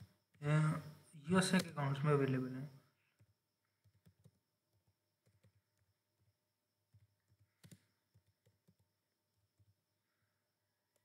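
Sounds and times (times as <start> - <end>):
computer keyboard typing: 3.1 - 9.9.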